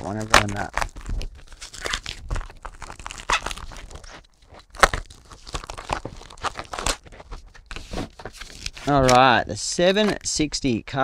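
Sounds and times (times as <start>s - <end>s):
plastic wrap crinkling and tearing: 0.0s - 9.4s.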